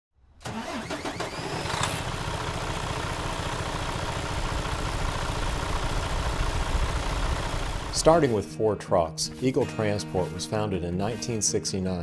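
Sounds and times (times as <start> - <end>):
vehicle engine starting and idling: 0.4 - 8.2.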